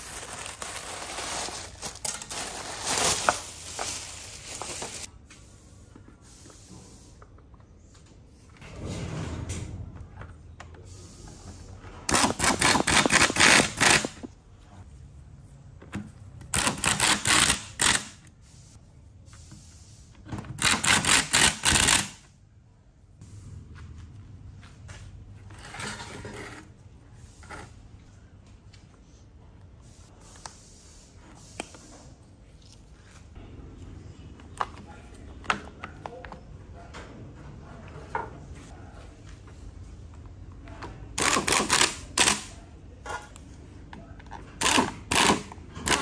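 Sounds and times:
handling of parts: 0:00.0 - 0:05.2.

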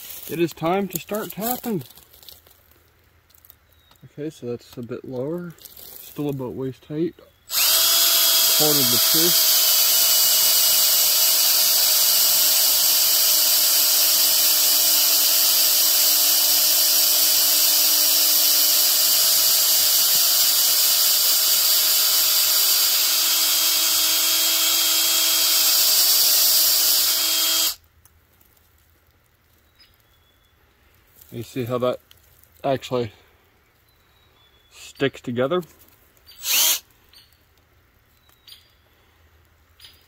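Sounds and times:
cordless drill boring into wood: 0:07.5 - 0:27.8, 0:36.4 - 0:36.8.

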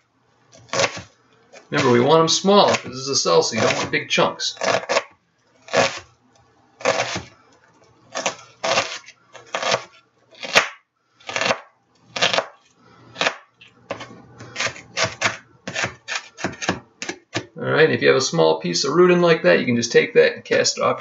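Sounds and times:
knife chopping on cutting board: 0:00.7 - 0:01.1, 0:03.6 - 0:03.9, 0:06.8 - 0:07.3, 0:13.2 - 0:17.5.

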